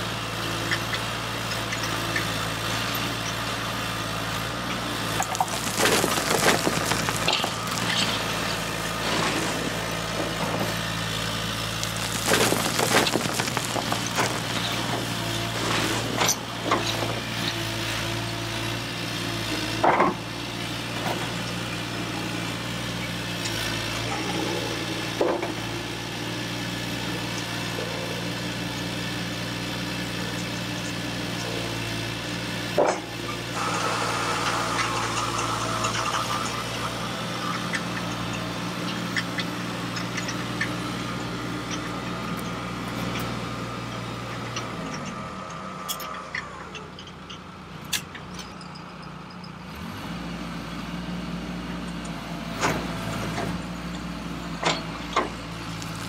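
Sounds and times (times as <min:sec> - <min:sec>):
model excavator humming: 0:00.0 - 0:56.0
high motor whine: 0:05.1 - 0:17.4, 0:33.2 - 0:47.8
gravel rattling onto metal: 0:05.2 - 0:10.8, 0:11.7 - 0:16.5.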